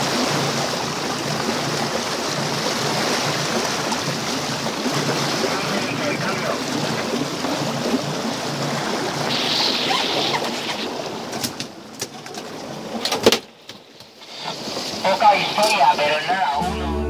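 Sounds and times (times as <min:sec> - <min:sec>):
boat engine running: 0:00.0 - 0:09.4, 0:14.2 - 0:17.0
water rushing: 0:00.0 - 0:17.0.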